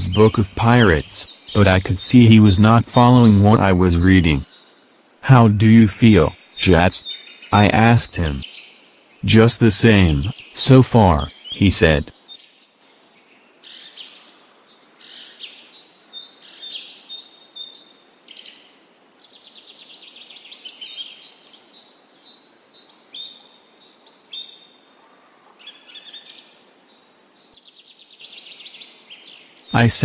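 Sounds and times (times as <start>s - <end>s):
birds chirping and singing: 0.0s - 12.7s.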